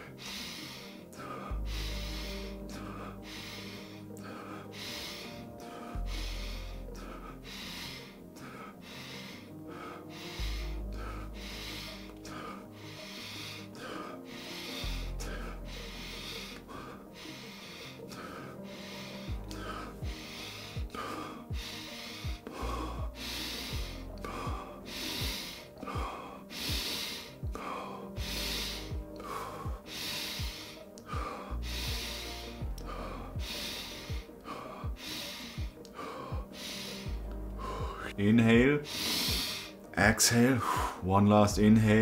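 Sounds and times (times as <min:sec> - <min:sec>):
fast deep mouth breathing: 0:00.0 - 0:39.9, 0:40.6 - 0:41.0
music with bass drone: 0:00.0 - 0:42.0.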